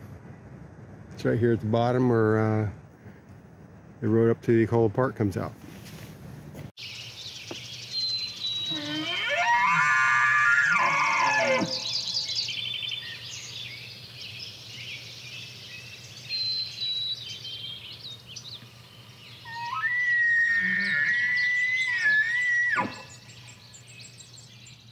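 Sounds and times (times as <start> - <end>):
birds chirping and trilling: 6.8 - 24.9
elk bugling: 8.6 - 12.3, 19.4 - 23.1.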